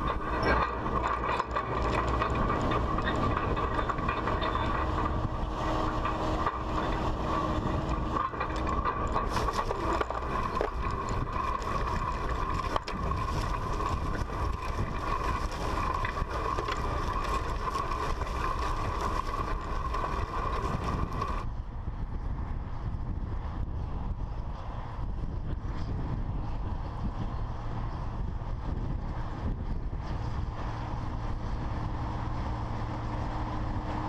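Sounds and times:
constant tone: 0:00.0 - 0:21.5
disc harrow clattering rattle: 0:00.0 - 0:21.5
tractor diesel engine: 0:00.0 - 0:21.8, 0:26.4 - 0:34.0
wind in field: 0:00.0 - 0:34.0.

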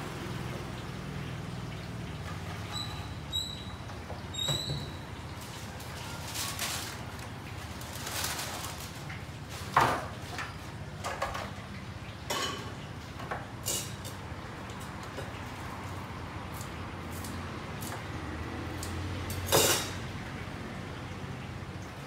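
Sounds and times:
objects knocking and clattering: 0:09.7 - 0:11.6.

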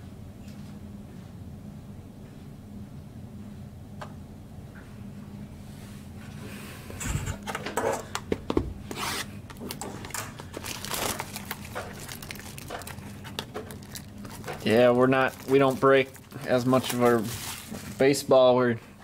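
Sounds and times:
wrapper crinkling and tearing: 0:09.6 - 0:18.3.

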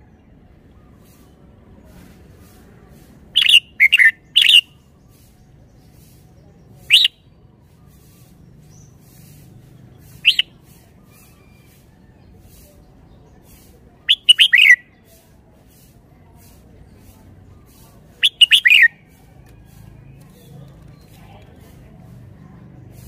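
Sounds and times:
bird singing short notes: 0:03.4 - 0:04.8, 0:06.9 - 0:07.2, 0:10.1 - 0:10.6, 0:14.1 - 0:14.8, 0:18.2 - 0:18.9.

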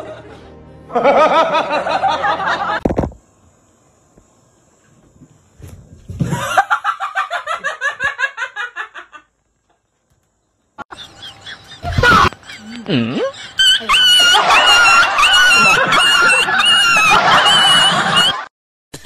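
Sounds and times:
hearty laughter: 0:00.0 - 0:02.8, 0:06.2 - 0:09.3, 0:10.8 - 0:18.5.

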